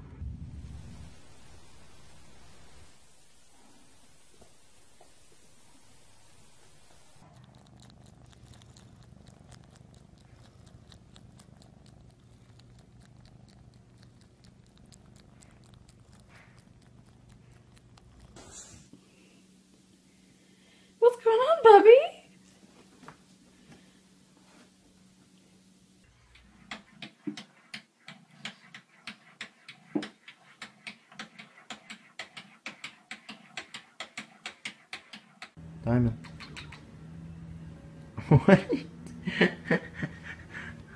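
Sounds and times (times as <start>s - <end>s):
cat purring: 0.0s - 19.0s, 35.9s - 38.3s.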